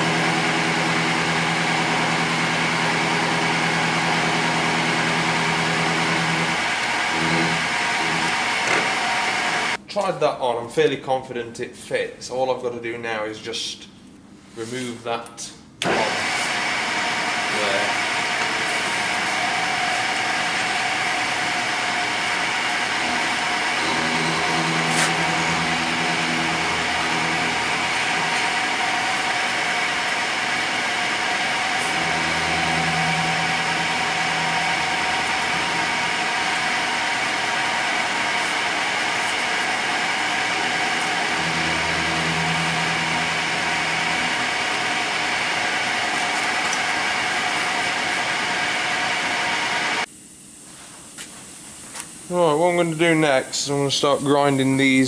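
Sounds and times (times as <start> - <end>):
low machine hum: 0.0 - 9.8, 16.7 - 50.1
milling machine whine: 0.0 - 9.8, 15.8 - 50.1.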